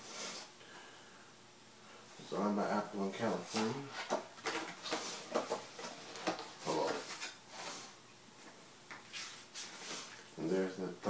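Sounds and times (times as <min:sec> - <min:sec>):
paper packaging rustling: 0:03.5 - 0:07.9.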